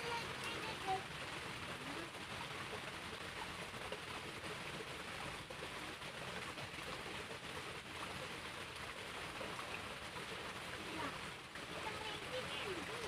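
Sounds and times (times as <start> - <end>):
creek water running: 0.0 - 13.0.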